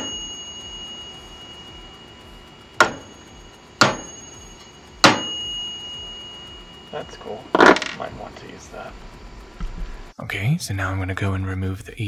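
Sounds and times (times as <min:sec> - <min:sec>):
small metal bell ringing: 0:00.0 - 0:08.1.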